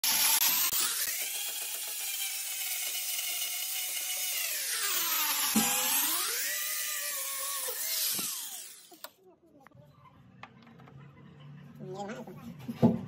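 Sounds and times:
grinder motor whining: 0.0 - 9.2.

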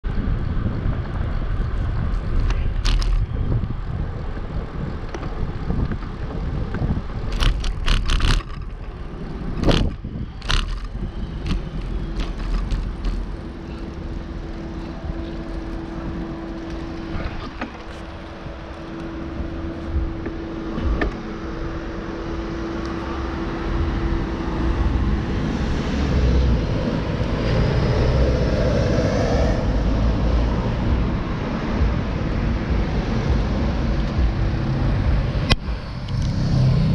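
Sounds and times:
passing motor traffic: 0.0 - 36.9
wind rumble on microphone: 0.0 - 36.9
sharp clicks and knocks: 5.1 - 9.0, 9.6 - 13.9, 20.2 - 21.2
steady hum: 8.4 - 36.9.

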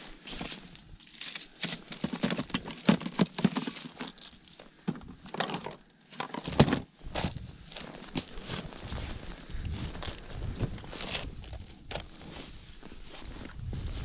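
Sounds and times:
crunching and knocking on ice: 0.3 - 5.7.

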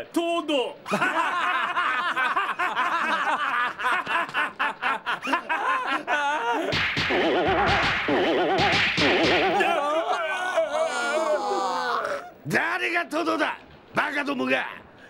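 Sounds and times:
men laughing: 0.8 - 12.4
wavering comic music: 6.7 - 9.7.

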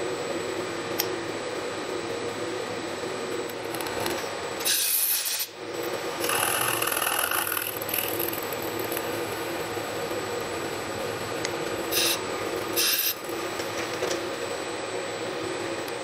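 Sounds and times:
steady motor hum: 0.0 - 16.0
thin whine: 0.0 - 16.0
drill bit cutting metal: 6.1 - 9.7, 11.9 - 13.2.

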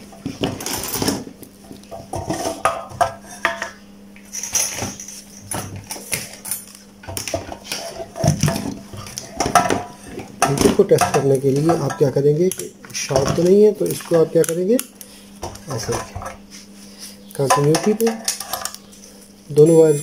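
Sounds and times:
tools clicking and clattering: 4.3 - 14.9, 17.4 - 18.8.

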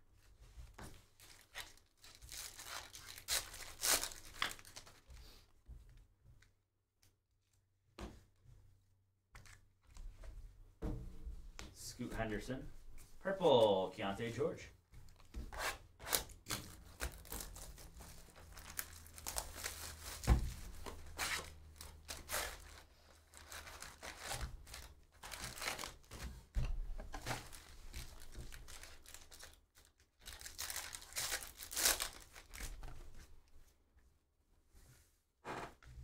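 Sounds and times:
plastic wrap tearing and crinkling: 1.1 - 5.1, 16.0 - 26.3, 27.1 - 33.0.

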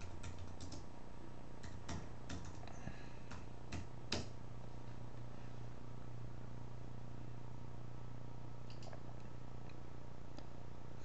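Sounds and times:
keyboard typing and clicking: 0.0 - 0.9, 1.6 - 4.4, 8.7 - 9.0.

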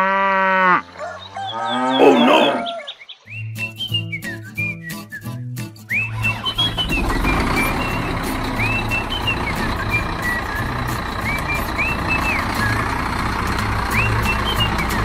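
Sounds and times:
birds chirping: 0.8 - 15.0
background music: 3.4 - 15.0
tractor engine running: 5.9 - 15.0.

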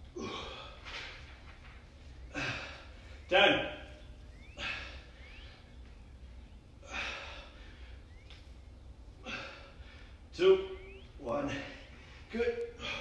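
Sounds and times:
man breathing hard: 2.3 - 3.2, 4.6 - 5.7, 6.8 - 8.1, 9.2 - 10.3.

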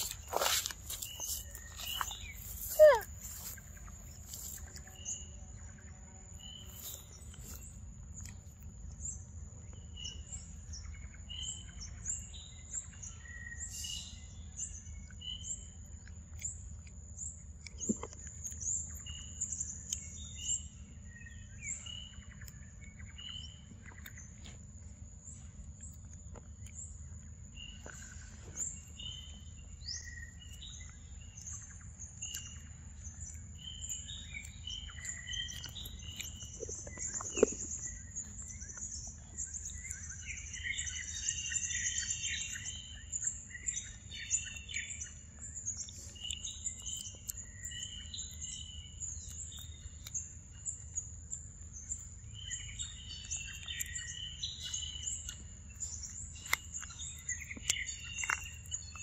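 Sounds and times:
forest birds chirping: 0.0 - 59.0
low background rumble: 0.0 - 59.0.

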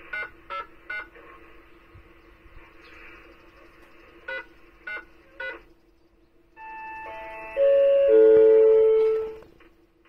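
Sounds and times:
descending loudspeaker chime: 6.6 - 9.4.

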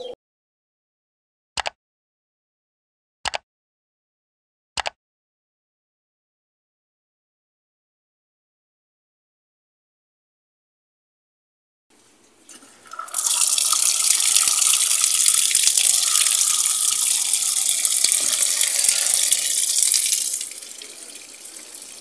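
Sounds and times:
water splashing onto laundry: 12.5 - 22.0
water pouring into washing machine: 12.6 - 22.0.

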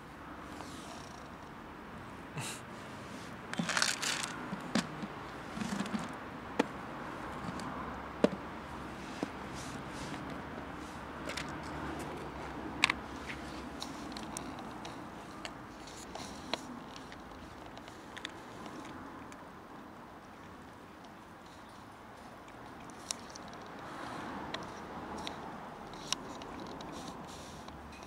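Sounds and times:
plastic lid rattling: 3.6 - 4.9.

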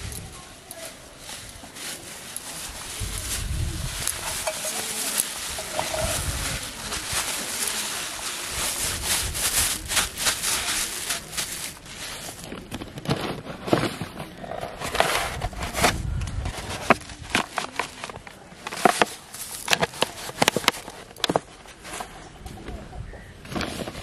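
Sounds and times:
plastic bag crinkling: 0.0 - 15.6, 16.5 - 22.1
low handling bumps: 3.0 - 7.2.

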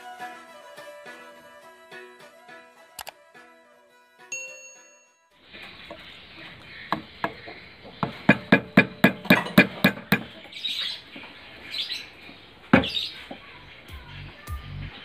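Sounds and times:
mallet tapping chisel into wood: 8.3 - 10.3.

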